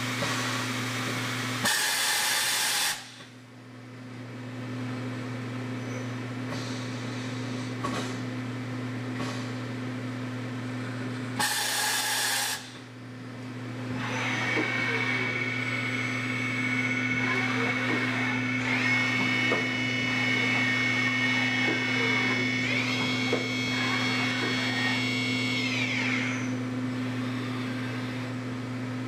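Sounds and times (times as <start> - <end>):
spindle whine: 13.9 - 28.3.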